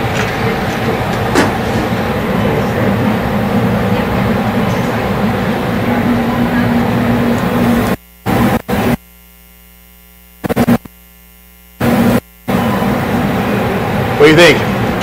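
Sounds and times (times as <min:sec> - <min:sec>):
busy kitchen din: 0:00.0 - 0:08.6
faint steady hum: 0:00.0 - 0:15.0.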